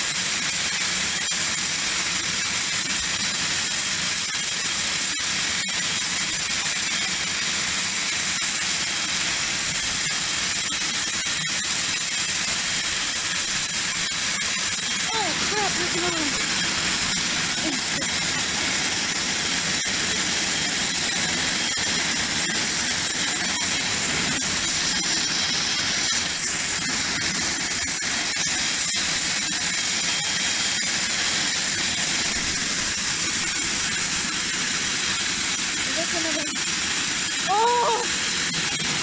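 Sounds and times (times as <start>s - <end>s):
jet engines idling with whine: 8.0s - 39.0s.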